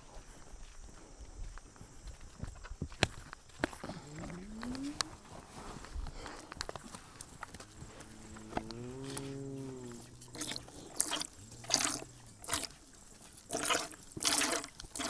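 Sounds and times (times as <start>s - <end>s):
cow mooing: 4.0s - 5.0s, 7.6s - 13.4s
milk squirting into pail: 9.8s - 15.0s.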